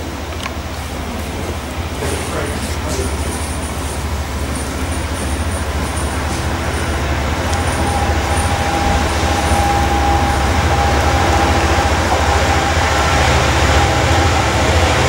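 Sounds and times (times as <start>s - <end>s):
diesel locomotive engine rumble: 0.0s - 15.0s
steady high whine: 0.0s - 15.0s.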